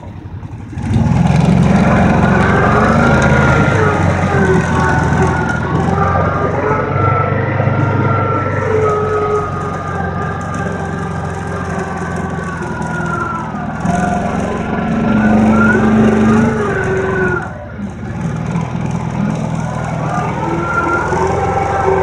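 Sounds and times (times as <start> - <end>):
atv engine revving: 0.0 - 22.0
rushing noise: 0.0 - 22.0.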